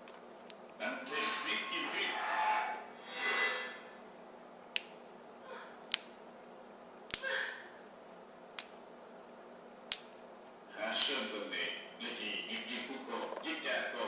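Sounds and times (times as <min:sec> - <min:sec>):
beans snapping by hand: 0:00.0 - 0:00.8, 0:04.7 - 0:05.1, 0:05.8 - 0:06.4, 0:07.0 - 0:07.3, 0:08.4 - 0:09.0, 0:09.8 - 0:11.2.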